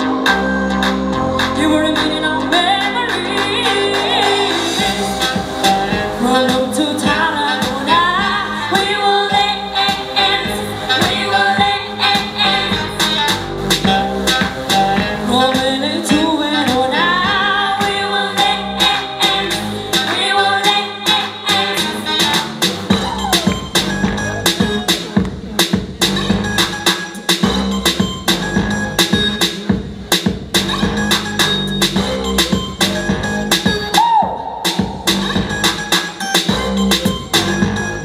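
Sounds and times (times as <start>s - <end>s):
woman singing pop song: 0.0s - 25.0s
backing music with steady beat: 0.0s - 38.0s.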